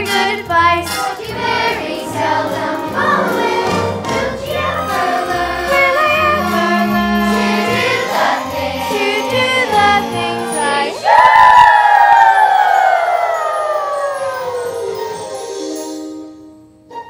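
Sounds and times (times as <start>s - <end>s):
young chorus singing: 0.0s - 12.8s
musical accompaniment: 0.0s - 17.0s.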